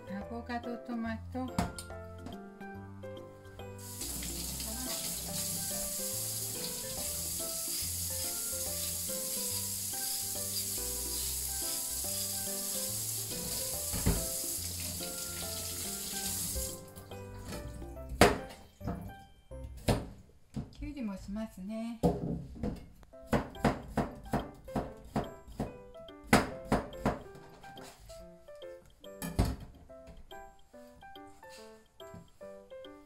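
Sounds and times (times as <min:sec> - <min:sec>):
background music: 0:00.0 - 0:33.0
tap running into metal sink: 0:13.3 - 0:16.7
knock: 0:23.4 - 0:25.3.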